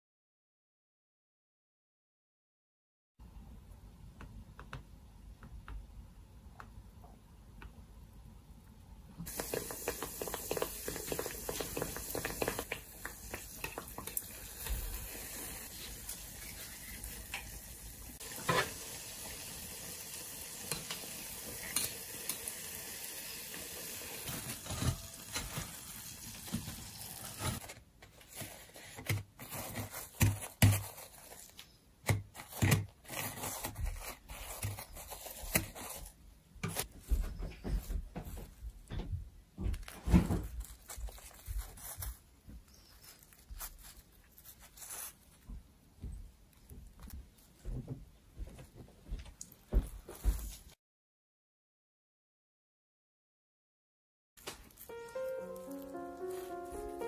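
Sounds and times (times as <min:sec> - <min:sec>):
oil sizzling while frying: 0:09.2 - 0:27.7
rustling: 0:32.4 - 0:38.6, 0:39.7 - 0:45.6, 0:54.4 - 0:57.0.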